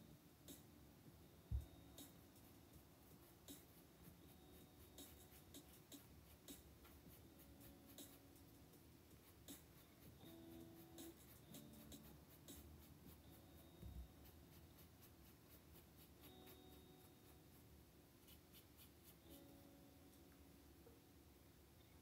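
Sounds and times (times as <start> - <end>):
paintbrush scratching on canvas: 9.1 - 13.4, 14.0 - 19.5.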